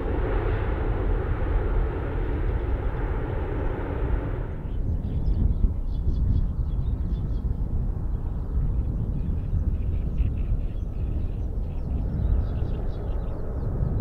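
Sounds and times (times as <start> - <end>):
jet engines rumbling: 0.0 - 6.3, 10.2 - 14.0.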